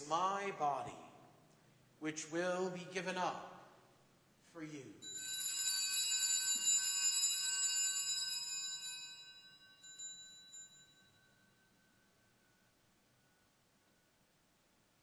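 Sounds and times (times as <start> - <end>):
altar bell ringing: 5.0 - 12.8.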